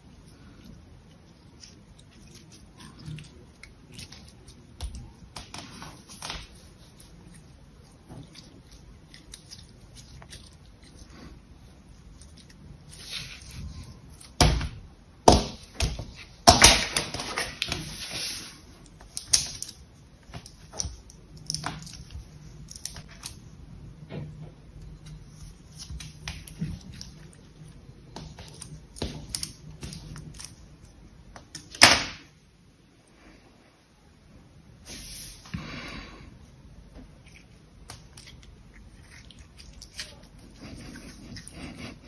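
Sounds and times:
hands squelching sticky jelly: 0.0s - 23.5s, 37.0s - 42.0s.

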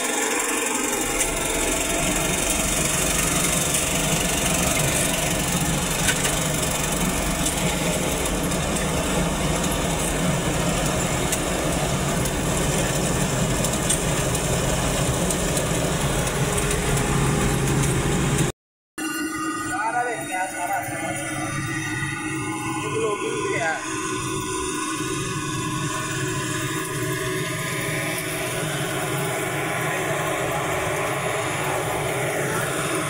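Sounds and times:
combine harvester engine drone: 0.0s - 18.5s, 19.7s - 33.0s
machinery clattering: 0.0s - 18.5s.

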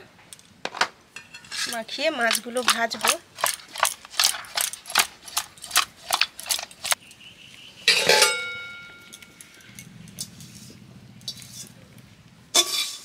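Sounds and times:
steel bowl ringing clang: 7.9s - 9.4s.

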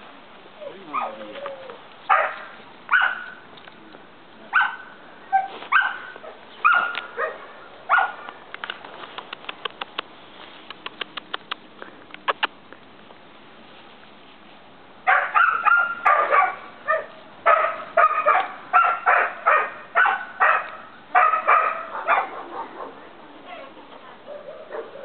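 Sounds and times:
puppy yapping: 0.6s - 3.4s, 4.5s - 8.2s, 15.1s - 25.0s.

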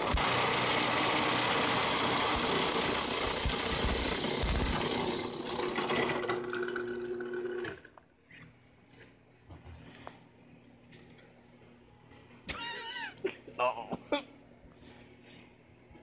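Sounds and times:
drill bit boring into block: 0.0s - 7.8s
drill press motor hum: 0.0s - 8.0s.

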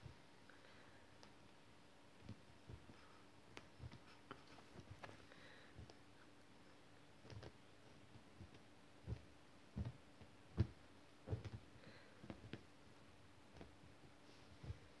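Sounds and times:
kitten taps and thumps: 8.4s - 12.7s.

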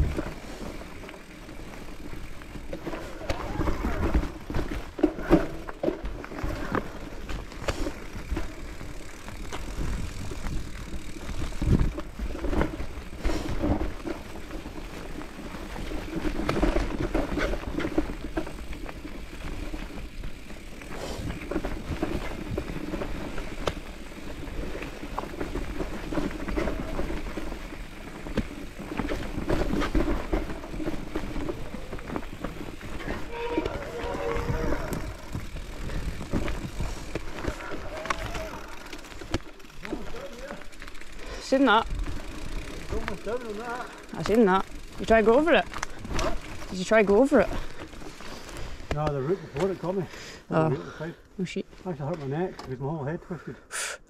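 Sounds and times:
bike knocks and rattles: 0.0s - 41.1s
bike tyres rumbling on dirt: 0.0s - 53.0s.

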